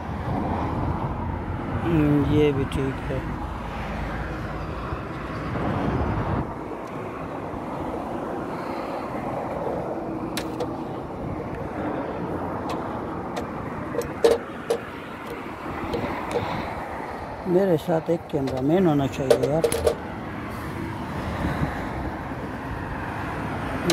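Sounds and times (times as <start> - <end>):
sharp metallic clicks: 18.4 - 20.0.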